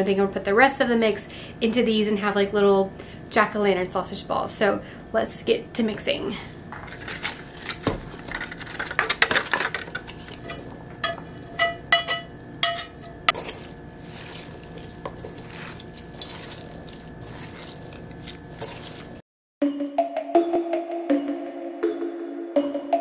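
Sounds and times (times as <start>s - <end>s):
hand squishing dough: 13.4s - 19.2s.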